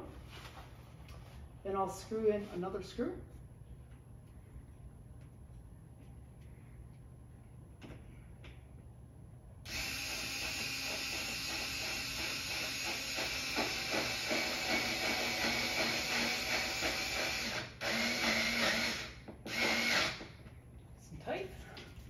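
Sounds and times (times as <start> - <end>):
cordless drill driving screw: 9.7 - 20.3.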